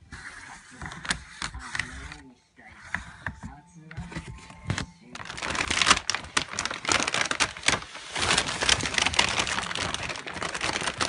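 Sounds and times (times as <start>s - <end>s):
paper bag rustling and crackling: 3.9s - 11.0s.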